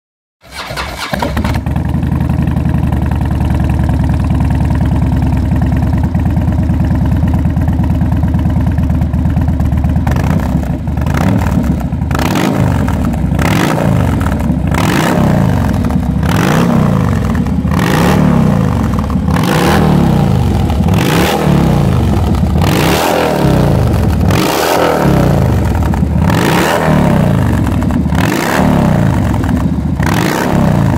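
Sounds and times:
motorcycle engine idling: 1.2s - 30.9s.

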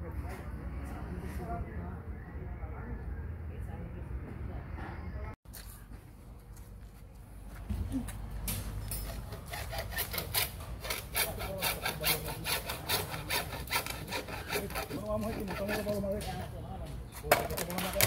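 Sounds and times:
hacksaw cutting plastic panel: 9.3s - 16.0s.

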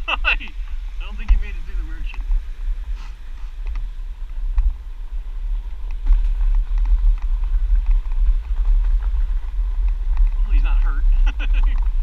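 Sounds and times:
wind rumble on microphone: 0.0s - 12.0s
bike clicks and rattles: 5.6s - 12.0s.

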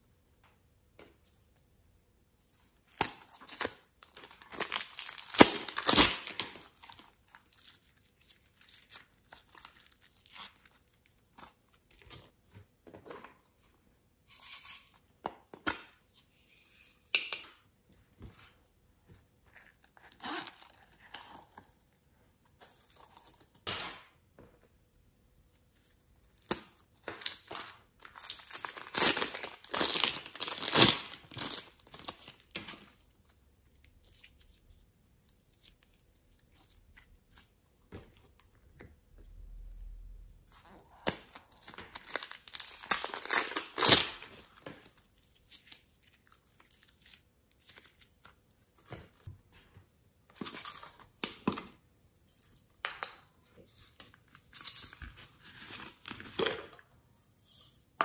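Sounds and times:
plastic bag crinkling: 3.4s - 11.2s, 27.2s - 32.6s, 41.6s - 45.4s.

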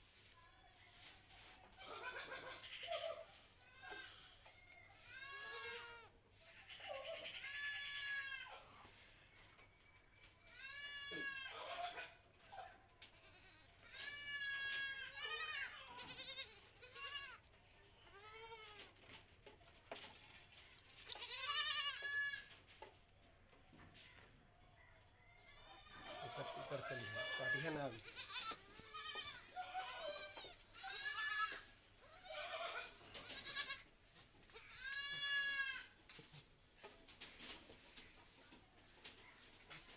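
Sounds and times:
goat kid bleating: 1.8s - 8.9s, 10.5s - 12.2s, 13.0s - 18.9s, 21.1s - 22.5s, 25.2s - 36.0s.

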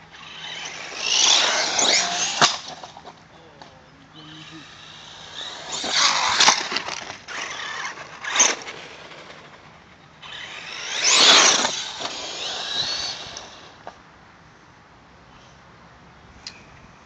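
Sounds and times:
electric motor whining: 10.2s - 13.8s.

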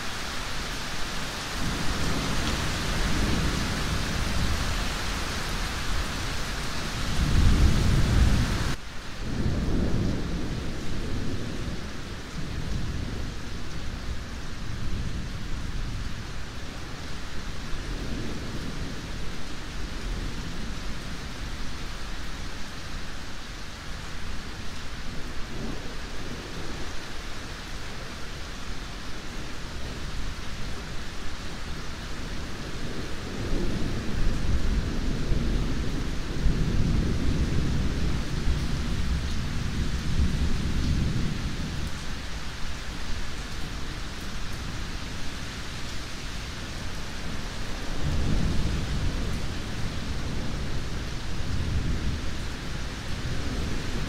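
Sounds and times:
heavy rain hissing: 0.0s - 54.0s
low rolling thunder: 1.5s - 17.1s, 29.3s - 42.1s, 46.6s - 54.0s.

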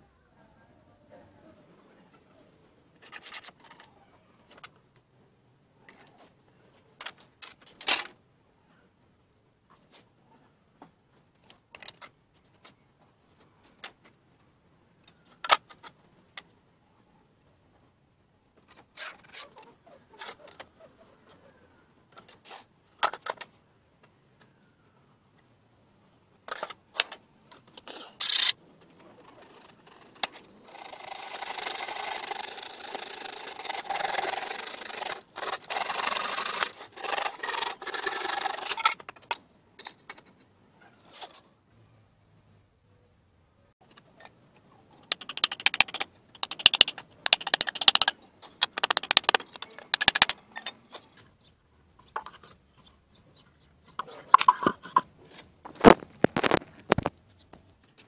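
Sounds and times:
scraping and rubbing on wood: 28.2s - 39.4s, 45.1s - 50.4s
knocks and clicks of boards: 45.1s - 50.4s.

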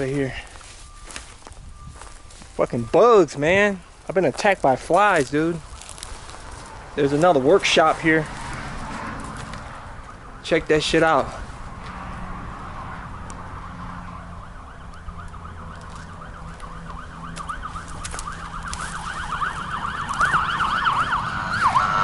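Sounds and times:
police siren yelping: 5.6s - 11.8s, 12.4s - 22.0s.

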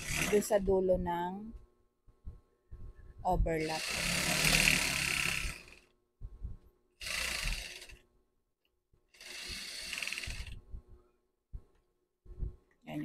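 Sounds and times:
sewing machine stitching: 0.0s - 0.5s, 3.6s - 5.9s, 7.0s - 8.0s, 9.1s - 10.6s.

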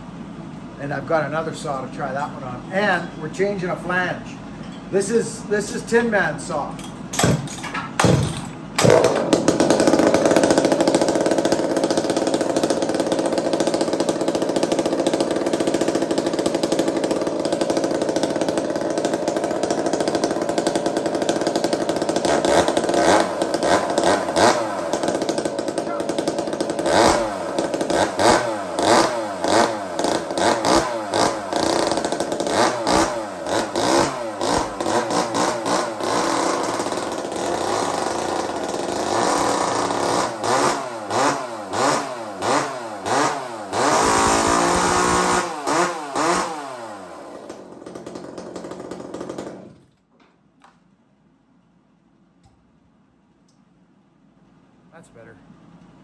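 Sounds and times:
chainsaw starting: 5.0s - 50.1s
chainsaw idling and revving: 8.0s - 50.0s.

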